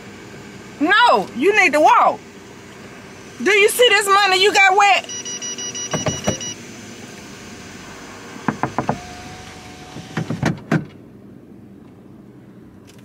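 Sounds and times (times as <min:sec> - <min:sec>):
electronic warning chime beeping: 0:05.0 - 0:06.6
clicks and knocks from car controls: 0:05.9 - 0:06.5, 0:10.0 - 0:11.0.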